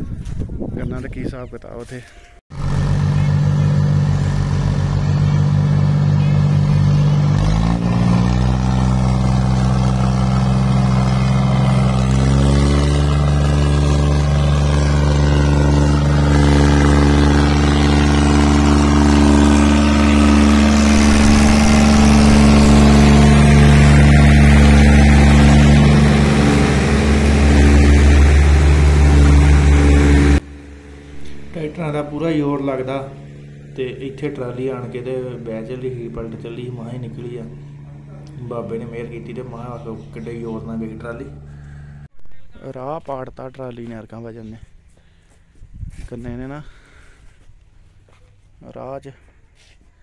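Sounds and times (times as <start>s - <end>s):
diesel tractor engine labouring: 2.5s - 42.1s.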